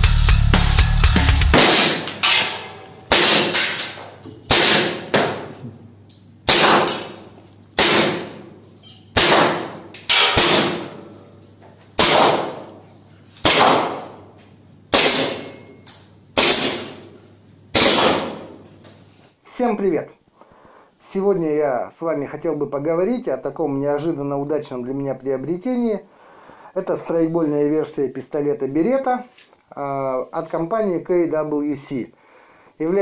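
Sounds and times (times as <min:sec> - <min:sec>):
airsoft pistol shots: 0:01.5 - 0:05.5, 0:06.5 - 0:07.2, 0:07.8 - 0:08.5, 0:09.2 - 0:11.0, 0:12.0 - 0:12.7, 0:13.4 - 0:14.2, 0:14.9 - 0:15.5, 0:17.7 - 0:18.6.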